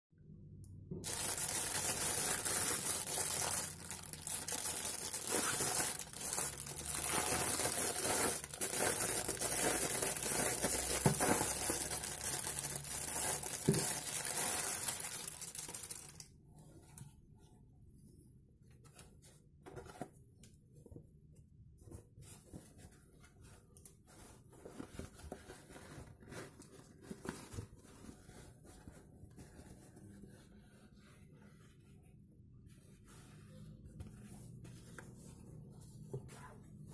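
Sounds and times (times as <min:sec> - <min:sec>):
plastic bag crinkling: 0:01.0 - 0:16.3
faint fabric rubbing: 0:21.6 - 0:36.9.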